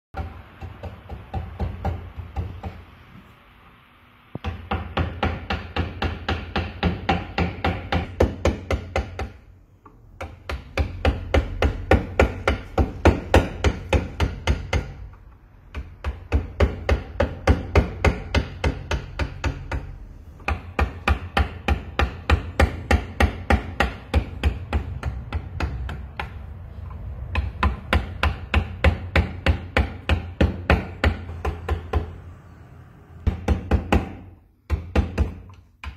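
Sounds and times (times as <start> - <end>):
mallet striking a gouge: 15.6 - 26.5.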